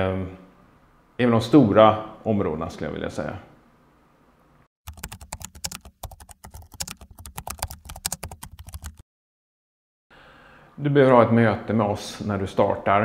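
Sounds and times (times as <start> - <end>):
keyboard typing clicks: 4.9 - 9.0.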